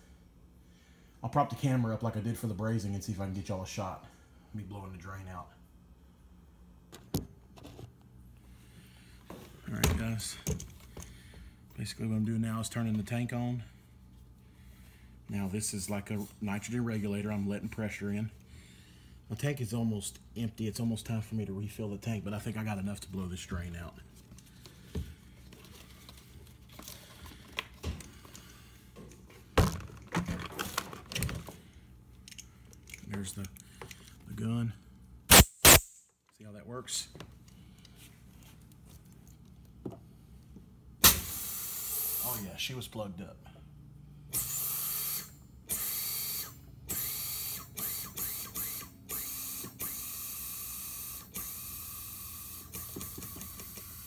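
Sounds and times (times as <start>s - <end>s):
low steady hum: 0.0s - 44.5s
sharp hissing gas blasts: 41.0s - 42.4s.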